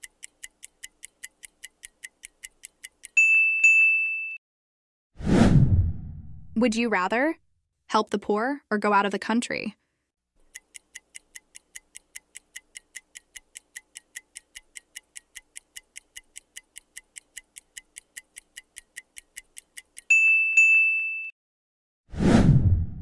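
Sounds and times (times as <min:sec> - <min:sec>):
clock ticking: 0:00.0 - 0:03.2, 0:10.4 - 0:20.2.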